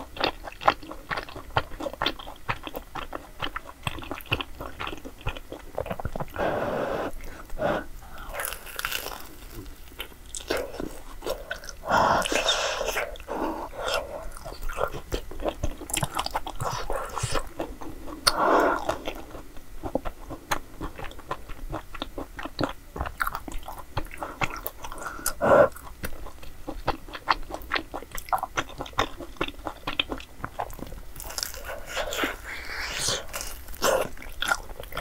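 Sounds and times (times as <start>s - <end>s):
crunchy bites: 7.3s - 19.2s, 26.8s - 35.0s.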